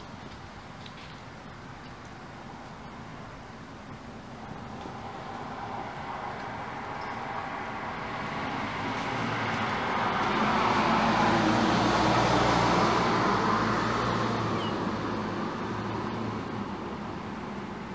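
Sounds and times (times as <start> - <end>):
motor vehicle passing: 4.2 - 17.9.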